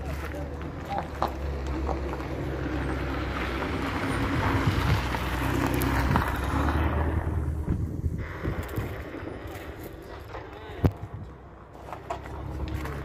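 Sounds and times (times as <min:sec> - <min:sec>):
wind rumbling on microphone: 0:01.6 - 0:11.7.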